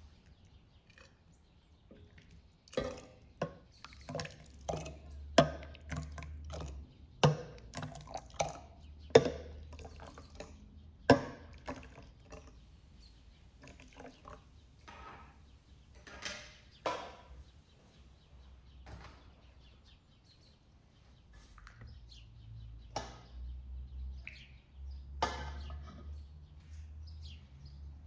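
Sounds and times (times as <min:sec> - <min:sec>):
liquid pouring and dripping: 0:01.9 - 0:12.5, 0:13.6 - 0:14.4
scoop clinking against basin and jar: 0:02.0 - 0:10.6.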